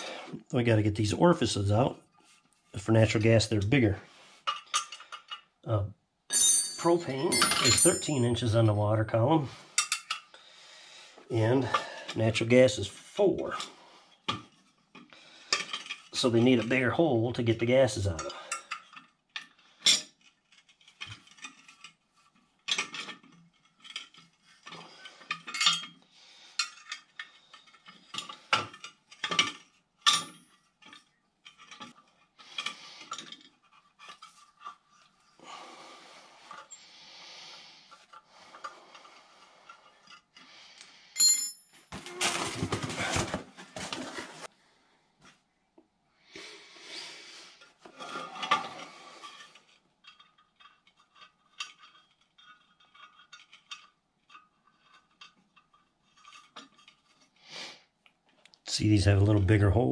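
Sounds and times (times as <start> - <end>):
wrenches clinking on metal: 4.4 - 5.5, 6.3 - 8.7, 9.8 - 10.3, 18.0 - 35.1, 48.0 - 57.2
sharp ringing clink: 6.3 - 8.4, 41.2 - 41.7.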